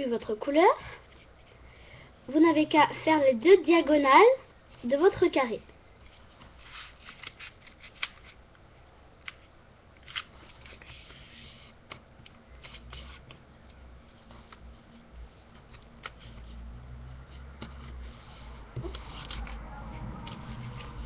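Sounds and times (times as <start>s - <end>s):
paper rustling and crackling: 6.1s - 8.4s, 17.2s - 21.0s.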